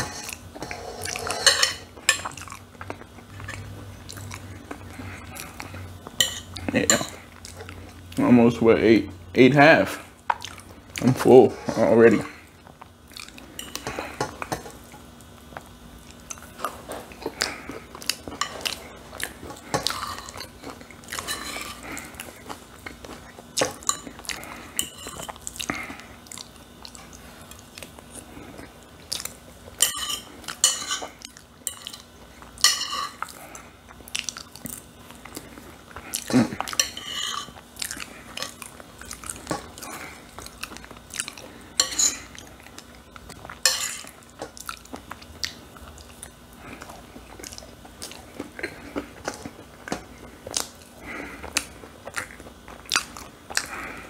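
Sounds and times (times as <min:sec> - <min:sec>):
fork scraping ceramic plate: 0:00.0 - 0:01.9, 0:19.7 - 0:20.5, 0:21.2 - 0:21.8, 0:36.8 - 0:37.6
chewing and mouth sounds: 0:02.0 - 0:08.2, 0:10.3 - 0:11.2, 0:12.3 - 0:54.0.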